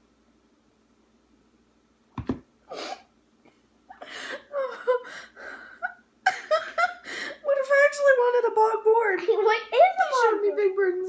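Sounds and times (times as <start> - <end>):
woman laughing breathily: 3.9 - 7.4.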